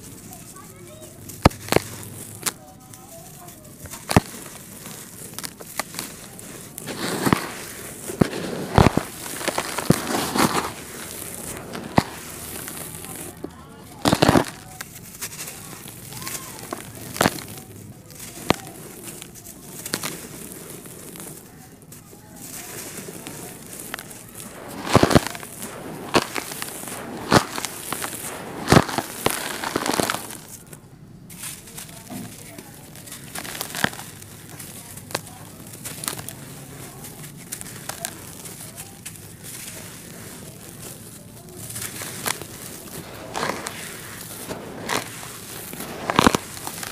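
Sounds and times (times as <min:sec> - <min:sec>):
dirt crunching by hand: 0:00.0 - 0:46.9
dry dirt pouring and sifting: 0:00.0 - 0:46.9.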